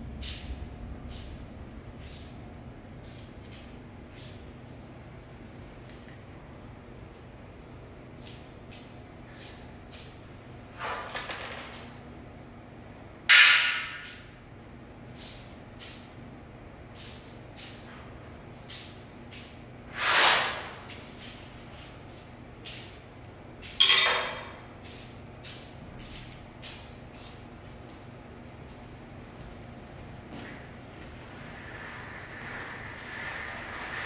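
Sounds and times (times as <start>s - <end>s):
ringing hit: 23.8s - 24.5s.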